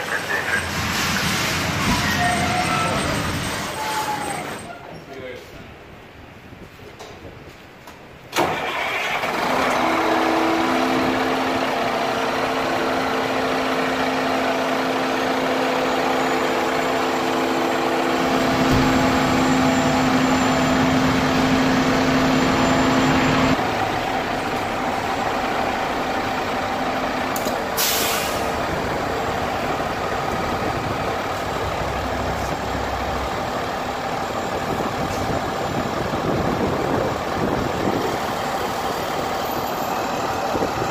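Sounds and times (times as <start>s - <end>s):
diesel engine starting and idling: 0.0s - 4.7s, 8.3s - 40.9s
air brake hiss: 27.7s - 28.6s.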